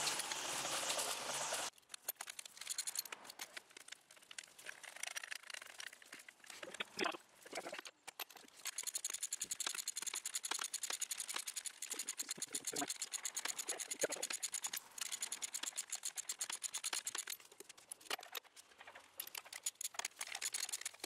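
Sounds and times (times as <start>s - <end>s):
ratchet wrench clicking: 1.9s - 3.5s, 8.1s - 17.7s, 19.2s - 21.0s
belt rubbing and knocking: 2.1s - 6.9s, 7.7s - 21.0s.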